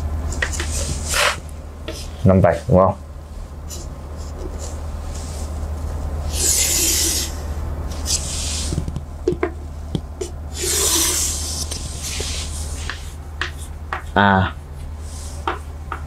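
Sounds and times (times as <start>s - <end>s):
chalk scraping on chalkboard: 6.3s - 7.4s, 10.6s - 14.1s.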